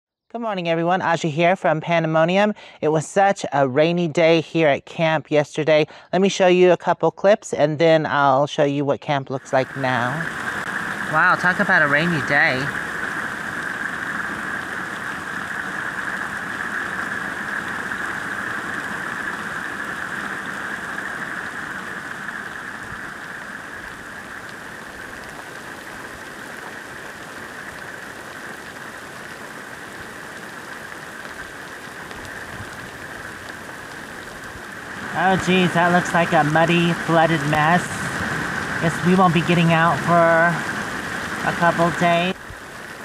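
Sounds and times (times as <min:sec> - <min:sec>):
steady rain: 0:09.4 - 0:43.0.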